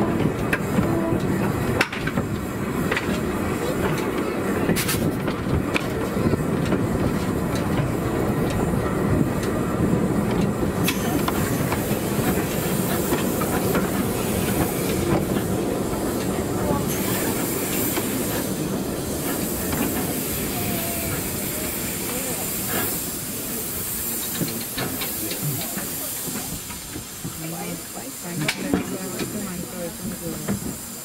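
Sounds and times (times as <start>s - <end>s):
steam locomotive rumbling: 0.0s - 31.0s.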